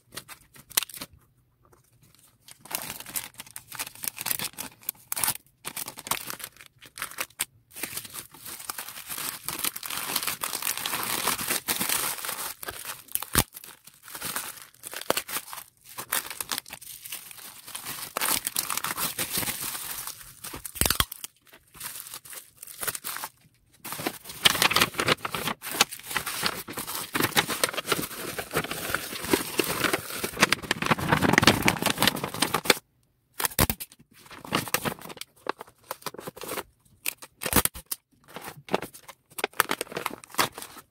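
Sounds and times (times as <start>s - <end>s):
plastic bags crinkling: 5.7s - 32.8s, 38.3s - 40.9s
tearing: 20.6s - 21.3s.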